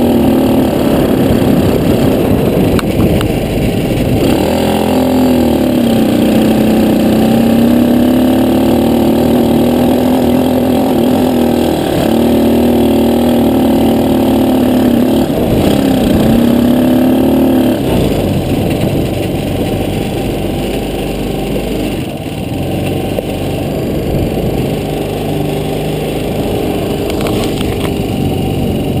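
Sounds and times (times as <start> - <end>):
quad bike engine revving: 0.0 - 29.0.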